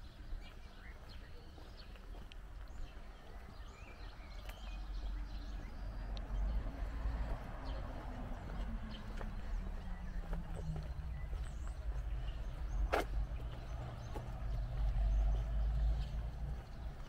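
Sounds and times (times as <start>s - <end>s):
small birds chirping: 0.0s - 17.0s
steady low rumble: 5.8s - 17.0s.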